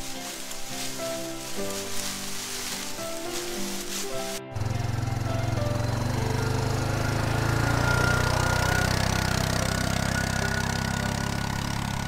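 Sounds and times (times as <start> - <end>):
small engine running: 4.5 - 12.0.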